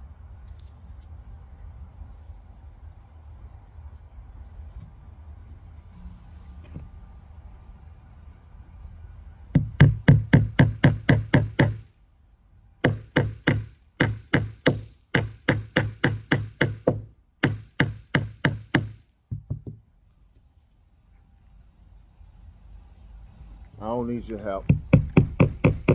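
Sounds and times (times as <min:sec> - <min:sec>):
hammer driving nails: 0:09.6 - 0:11.8, 0:12.8 - 0:19.8, 0:24.6 - 0:25.9.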